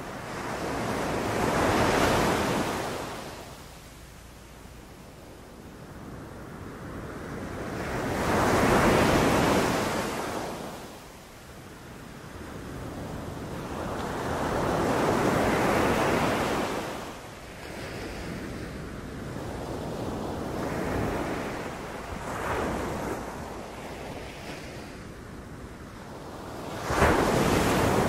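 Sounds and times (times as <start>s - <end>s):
sea waves breaking on beach: 0.0s - 3.7s, 12.6s - 25.2s, 26.1s - 28.0s.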